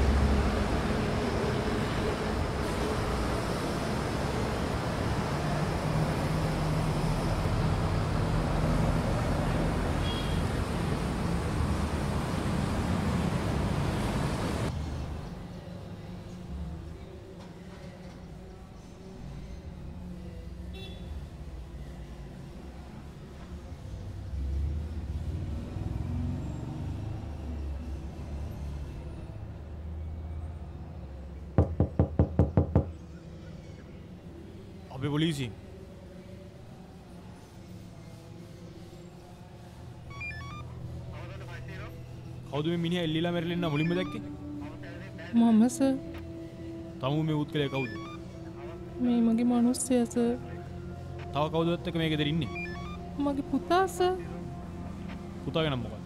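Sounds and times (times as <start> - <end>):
loud sharp knocks: 31.6 - 32.9.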